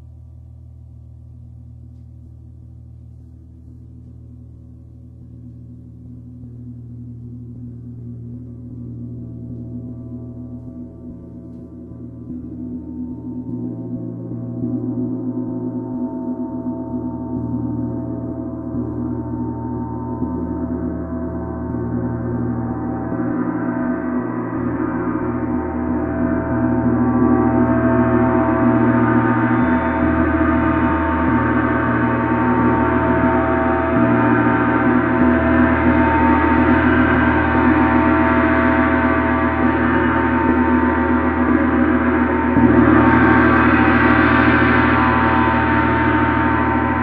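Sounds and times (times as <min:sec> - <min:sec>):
gong ringing: 0:18.6 - 0:47.0.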